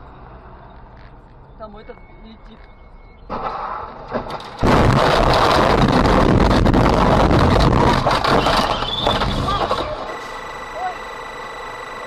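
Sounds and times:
wind noise: 0:02.4 - 0:09.7.

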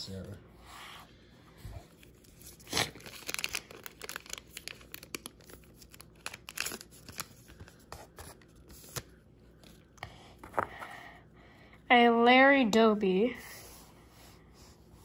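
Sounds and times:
foil wrapper tearing and crinkling: 0:02.3 - 0:07.7.

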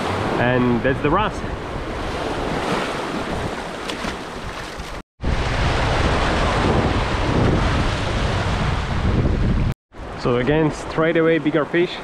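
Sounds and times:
wind buffeting microphone: 0:01.4 - 0:10.2
waves breaking over rocks: 0:02.0 - 0:05.0.

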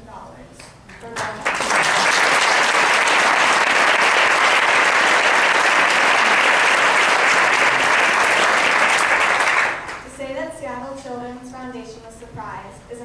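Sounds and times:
crowd applauding: 0:01.2 - 0:10.1.

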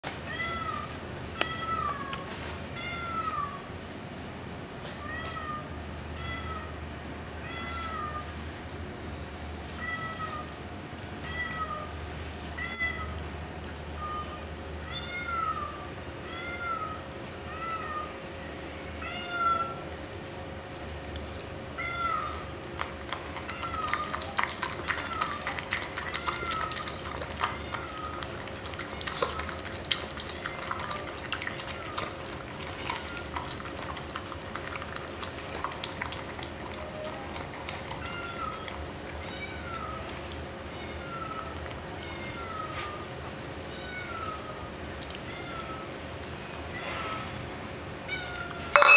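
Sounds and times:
dog lapping from metal bowl: 0:22.8 - 0:43.2.

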